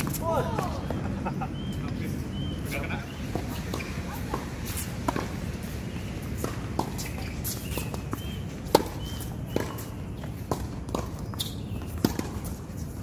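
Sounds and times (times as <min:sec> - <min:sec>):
tennis ball hits and bounces: 0:03.3 - 0:13.0.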